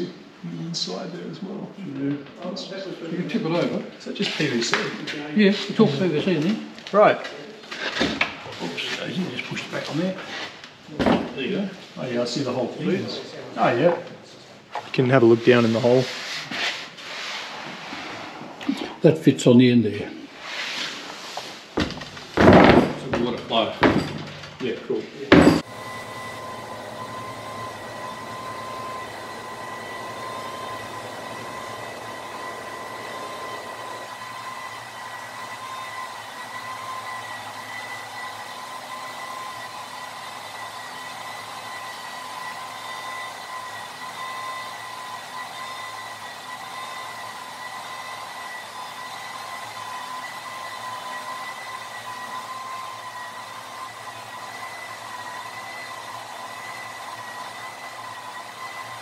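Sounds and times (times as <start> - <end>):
electric motor whirring: 25.5 - 59.0.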